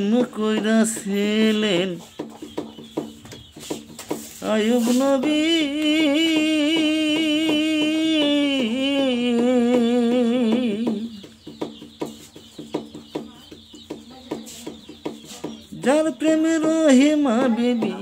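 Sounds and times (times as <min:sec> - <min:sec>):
man singing unaccompanied: 0:00.0 - 0:02.8, 0:04.3 - 0:11.7, 0:15.6 - 0:18.0.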